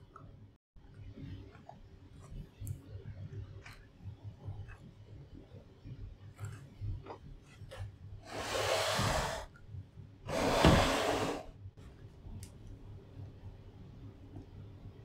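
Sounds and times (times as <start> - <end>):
wooden carriage sliding on rails: 10.3 - 11.5.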